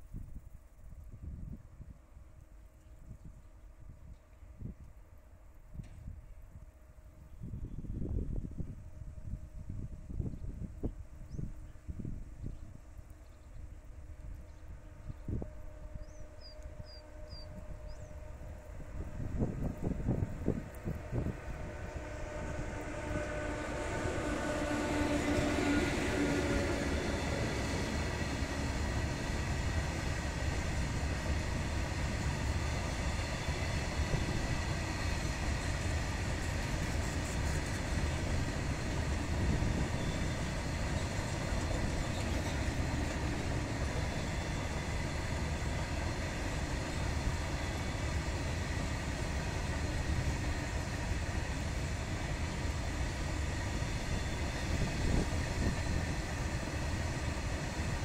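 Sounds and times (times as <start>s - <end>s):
freight train wheels rumbling: 13.8s - 58.0s.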